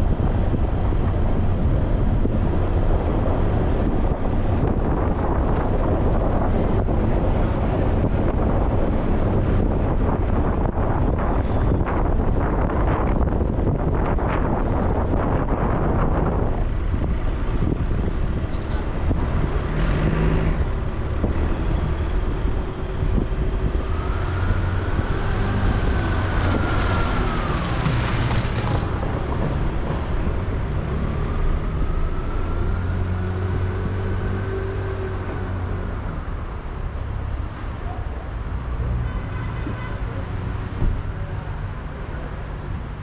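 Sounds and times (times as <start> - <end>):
car engine and tyres rumbling: 0.0 - 39.1, 40.1 - 43.0
surrounding traffic: 0.0 - 43.0.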